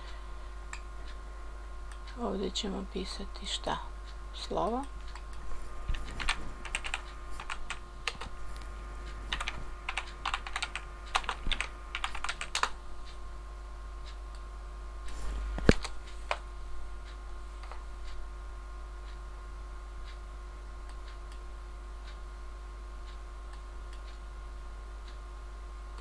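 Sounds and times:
faint steady hum: 0:00.0 - 0:26.0
typing on keyboard: 0:06.0 - 0:08.3, 0:09.3 - 0:12.8.

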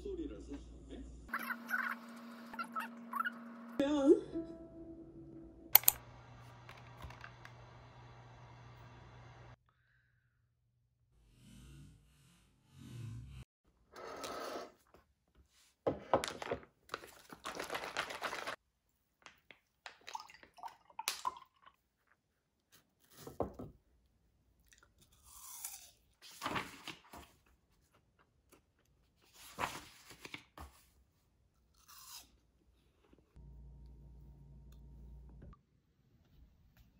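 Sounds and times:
apple slices crunched and chewed: 0:24.7 - 0:26.1, 0:31.7 - 0:32.4.

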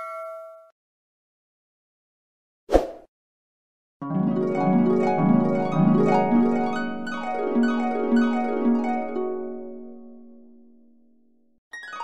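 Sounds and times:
harp rippling arpeggios: 0:04.0 - 0:10.7.

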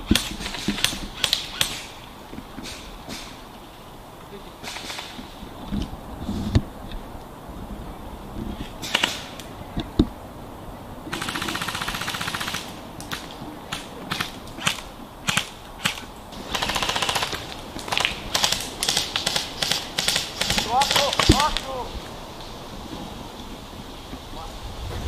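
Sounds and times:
airsoft gun single cracks: 0:00.1 - 0:01.9, 0:04.6 - 0:05.2, 0:08.8 - 0:09.5
airsoft gun full-auto burst: 0:11.1 - 0:21.5.

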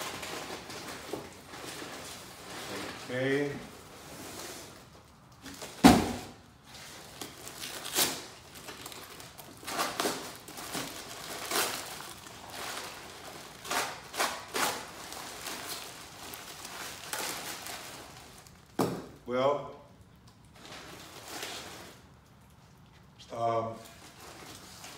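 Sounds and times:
cardboard box thud: 0:05.8 - 0:06.4
packing paper crinkling: 0:06.7 - 0:18.8.

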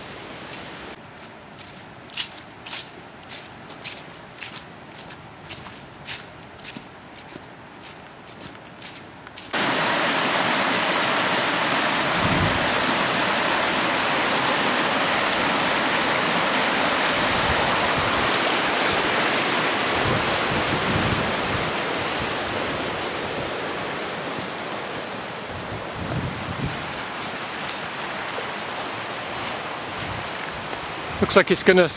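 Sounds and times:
water rushing over rocks: 0:09.5 - 0:31.5.

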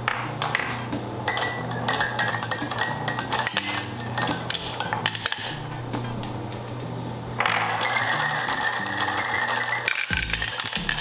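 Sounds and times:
marbles clicking and clattering: 0:07.4 - 0:11.0.

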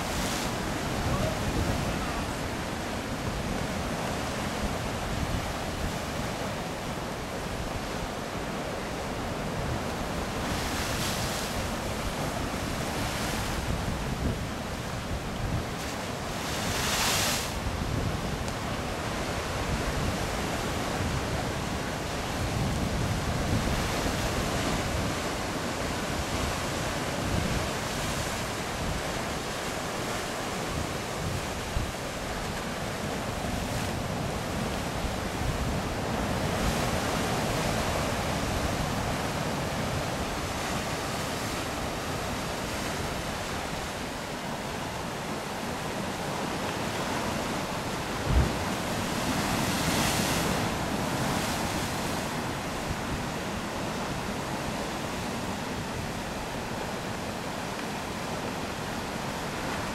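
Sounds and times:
ocean surf on shore: 0:00.0 - 0:59.9
wind gusting on microphone: 0:45.0 - 0:56.6.

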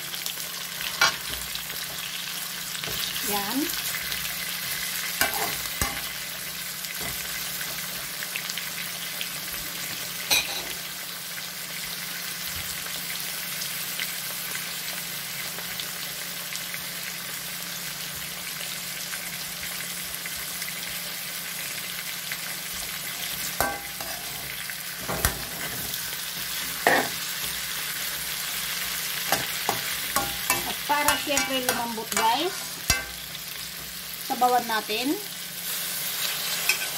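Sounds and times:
food sizzling in a wok: 0:00.0 - 0:36.9
metal spatula knocking wok: 0:23.6 - 0:24.2, 0:29.3 - 0:33.3.

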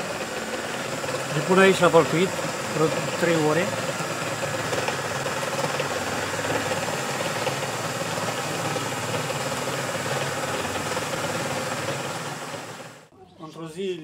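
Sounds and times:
motor hum: 0:00.0 - 0:13.1
tanning drum turning: 0:00.0 - 0:13.1.

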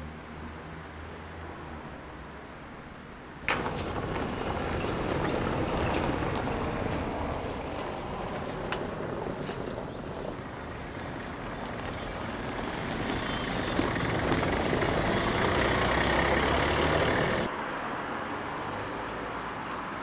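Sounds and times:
small car driving past: 0:03.5 - 0:17.5.

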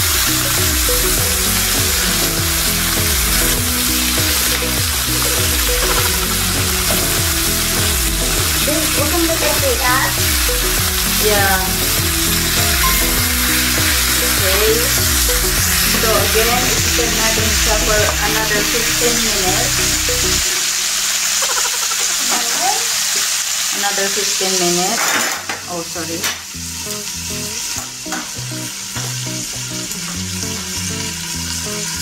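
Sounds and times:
background music with beat: 0:00.0 - 0:20.6
chicken sizzling in a skillet: 0:00.0 - 0:32.0.

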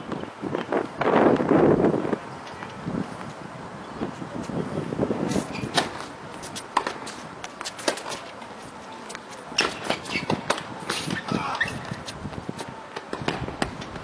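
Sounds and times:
footsteps on court: 0:05.2 - 0:14.0
tennis ball struck and bouncing: 0:06.8 - 0:07.2.

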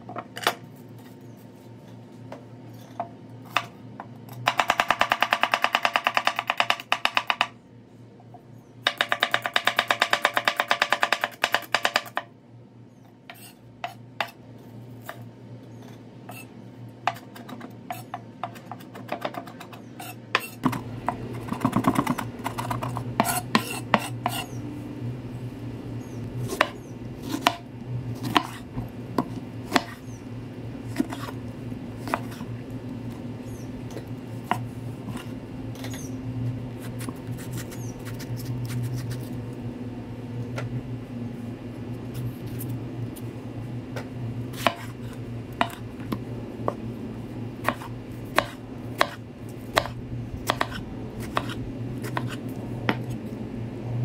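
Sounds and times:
knife chopping on wooden board: 0:08.9 - 0:12.2, 0:17.1 - 0:24.5, 0:28.2 - 0:30.0, 0:44.5 - 0:45.0, 0:45.6 - 0:45.8, 0:47.6 - 0:53.2.

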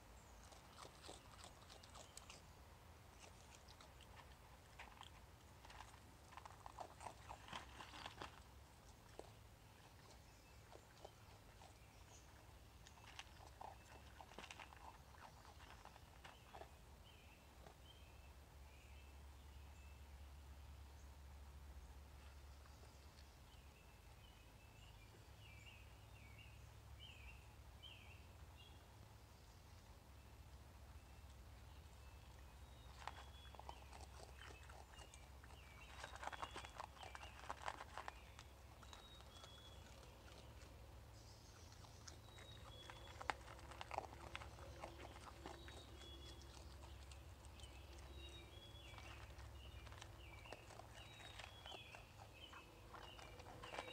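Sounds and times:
raccoon chewing: 0:00.0 - 0:18.2, 0:31.0 - 0:53.9.

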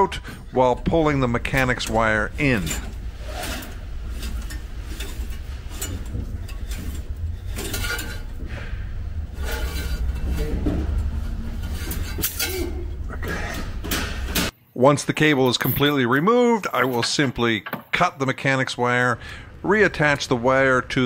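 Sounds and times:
clutch cable scraping and clicking: 0:00.0 - 0:14.5
steady low rumble: 0:00.0 - 0:14.5, 0:19.2 - 0:21.0.

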